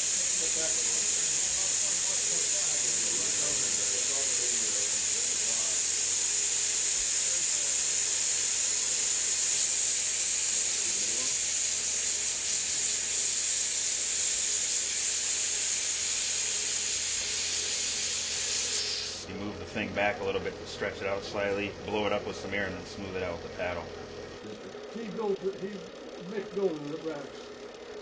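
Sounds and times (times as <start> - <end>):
torch hissing: 0.0 - 19.3.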